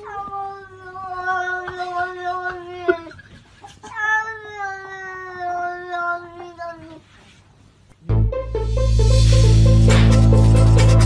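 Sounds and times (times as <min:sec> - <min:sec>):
cat yowling: 0:03.8 - 0:07.0.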